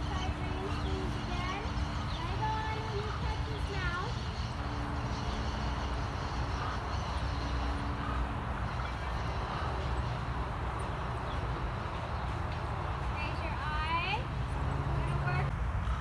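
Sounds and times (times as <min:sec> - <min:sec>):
low outdoor rumble: 0:00.0 - 0:16.0.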